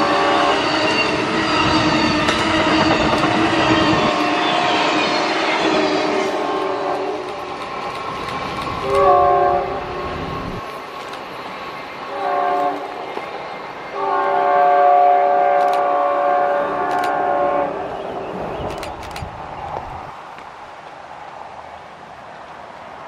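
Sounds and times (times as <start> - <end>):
locomotive air horn: 0.0 - 7.3, 8.8 - 10.2, 12.1 - 12.9, 14.0 - 17.8.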